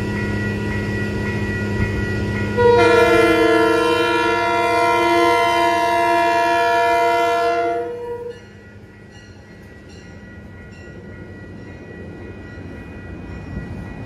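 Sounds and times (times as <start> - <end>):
crossing bell ringing: 0.0 - 14.0
train cars rumbling: 0.0 - 14.0
train horn: 2.6 - 8.4.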